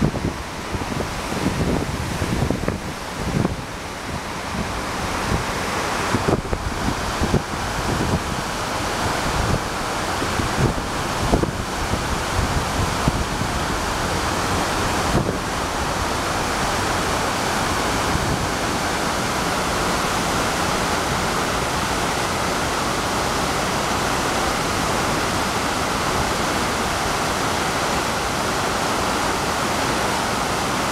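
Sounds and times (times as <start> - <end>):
wind bumps on microphone: 0.0 - 16.9
waterfalls rushing: 0.0 - 30.9.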